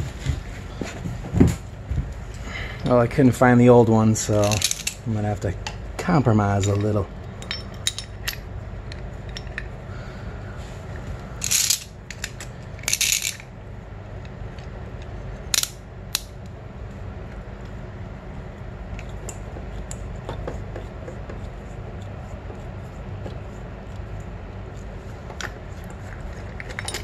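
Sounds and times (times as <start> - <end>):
steady low hum: 0.0 - 27.0
metal tools clinking and rattling: 4.3 - 5.1, 6.5 - 8.4, 9.2 - 9.7, 11.4 - 13.4, 26.3 - 27.0
metal clatter: 25.4 - 27.0.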